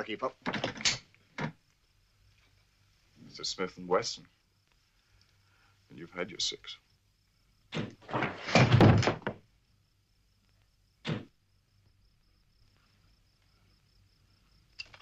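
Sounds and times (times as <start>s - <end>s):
insects chirring: 0.0s - 15.0s
loud heavy thuds: 7.8s - 9.4s.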